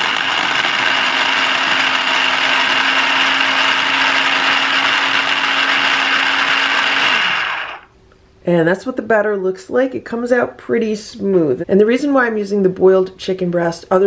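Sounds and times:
food processor motor whirring: 0:00.0 - 0:07.9.

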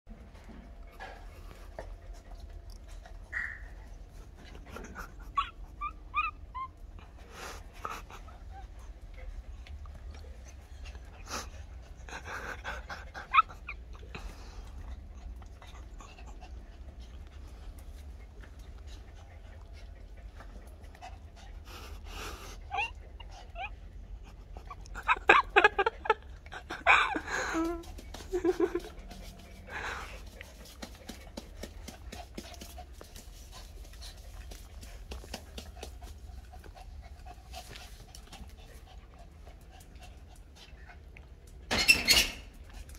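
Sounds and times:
dogs panting: 0:00.2 - 0:41.7
dog whimpering: 0:04.8 - 0:07.0, 0:13.2 - 0:14.1, 0:22.6 - 0:28.8
paws scuffling on tiled floor: 0:25.0 - 0:42.9.

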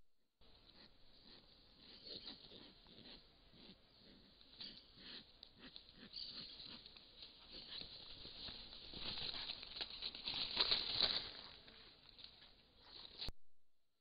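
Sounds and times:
vultures rustling in dry leaves: 0:06.5 - 0:13.3.

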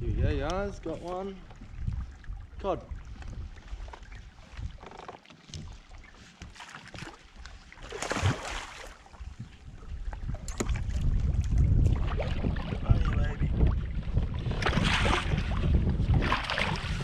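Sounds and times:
low rumbling: 0:00.0 - 0:03.7
water splash: 0:07.8 - 0:09.0, 0:14.4 - 0:17.0.

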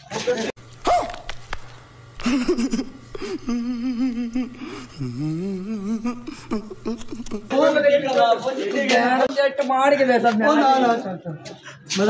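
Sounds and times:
man humming: 0:02.2 - 0:07.8.

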